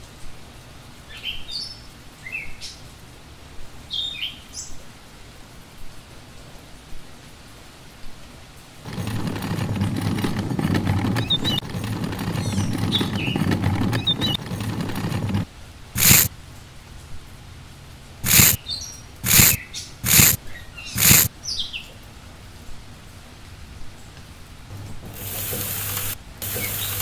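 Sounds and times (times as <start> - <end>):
birds chirping: 8.9 - 15.4
metal hoe scraping sand: 8.9 - 16.3.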